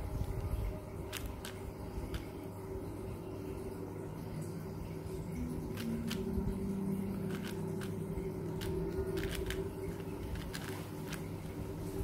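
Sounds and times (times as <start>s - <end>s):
steady low hum: 0.0s - 12.0s
speed cube clicking: 1.1s - 2.3s, 5.8s - 6.3s, 7.3s - 11.3s.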